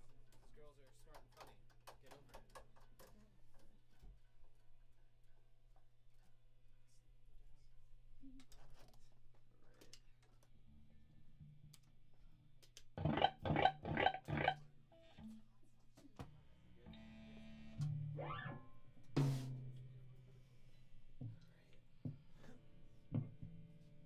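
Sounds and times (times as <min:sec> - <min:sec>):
electric guitar picked notes: 0:13.0 - 0:15.4
strummed guitar chords: 0:13.0 - 0:15.4.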